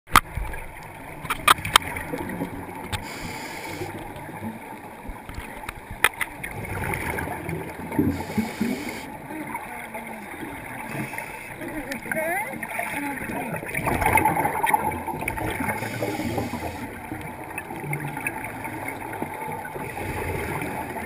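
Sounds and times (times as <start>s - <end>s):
underwater bubbling and gurgling: 0.1s - 21.0s
scuba breathing hiss: 3.0s - 4.0s, 8.0s - 9.1s, 15.7s - 17.0s.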